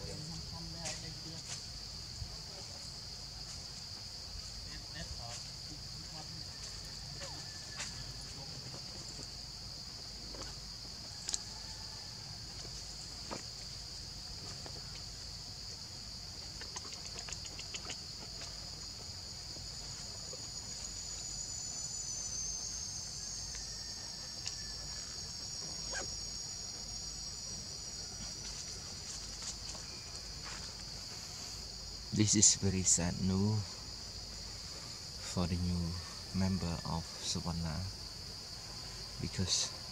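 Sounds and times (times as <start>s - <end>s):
high-pitched insect chorus: 0.0s - 39.9s
faint clicks: 16.6s - 18.0s.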